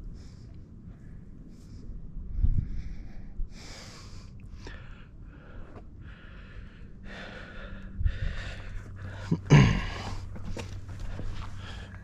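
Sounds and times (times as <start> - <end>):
person breathing hard: 0.0 - 12.0.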